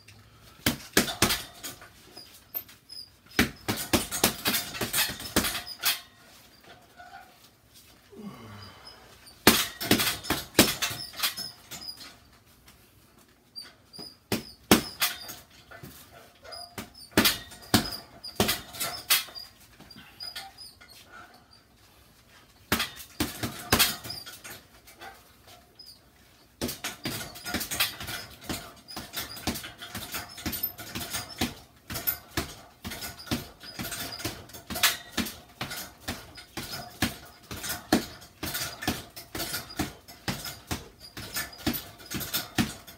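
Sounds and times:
gloves punching a bag: 0.6 - 5.9, 9.4 - 12.1, 13.9 - 20.1, 22.7 - 24.6, 26.6 - 42.9.

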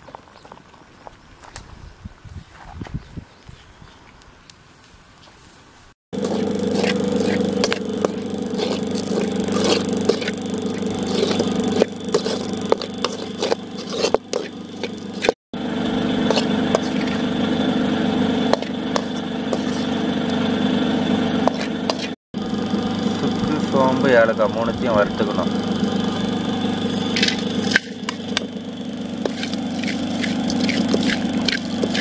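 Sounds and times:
metal ladle scraping a pan: 6.2 - 15.4, 16.3 - 17.3, 18.5 - 19.9, 21.4 - 22.2, 29.2 - 32.0
steady engine-like hum: 6.2 - 32.0.

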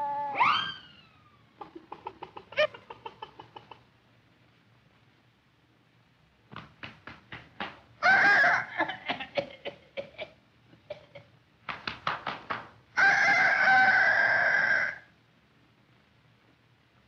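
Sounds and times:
hen clucking and cackling: 1.6 - 3.8, 8.0 - 9.0, 13.0 - 15.1.

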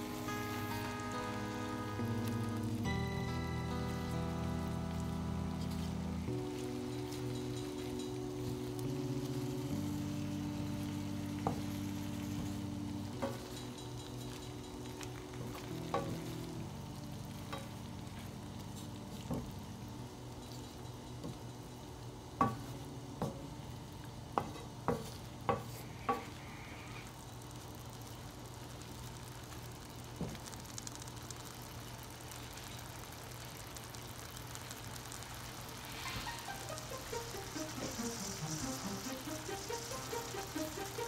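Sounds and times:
spinach sizzling in a pan: 0.0 - 41.0
wooden spoon knocking on pan: 13.2 - 14.5, 22.4 - 23.5, 24.3 - 26.3.

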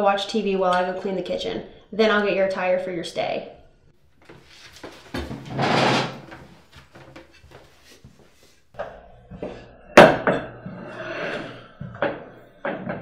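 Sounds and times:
chair scraping: 4.2 - 8.2.

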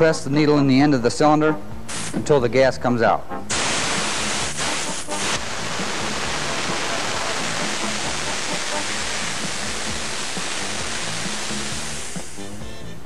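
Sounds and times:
gas hissing from cylinder: 1.9 - 2.3, 3.5 - 12.7.

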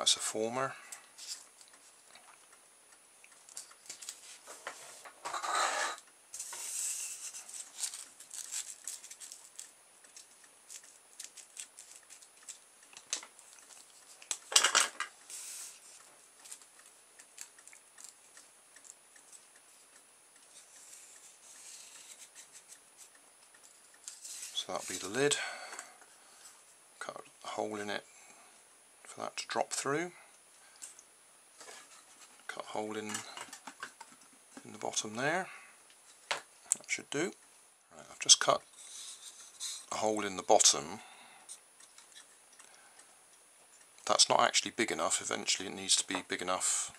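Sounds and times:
crackling rustle: 0.9 - 2.6, 3.2 - 25.3, 30.4 - 34.7
hands handling tape and strip: 6.4 - 14.5.

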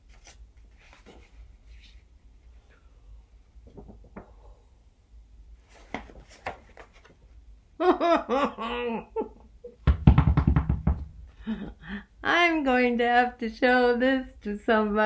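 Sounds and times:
woman laughing and giggling: 7.8 - 9.8, 11.4 - 12.1.

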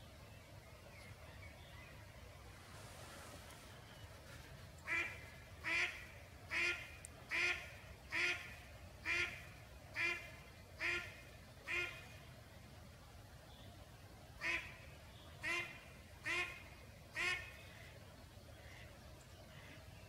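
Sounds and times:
duck quacking loudly: 4.9 - 12.0.

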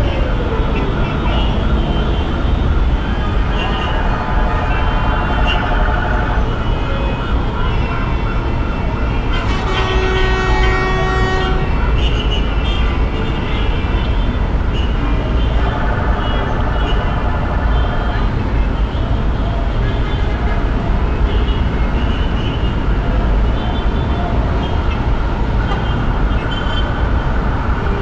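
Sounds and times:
traffic engines rumbling: 0.0 - 28.0
vehicle horn: 9.3 - 18.2.

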